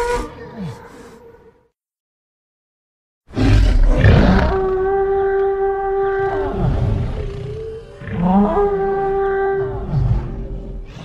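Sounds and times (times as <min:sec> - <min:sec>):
creature roaring call: 0:03.3 - 0:11.0.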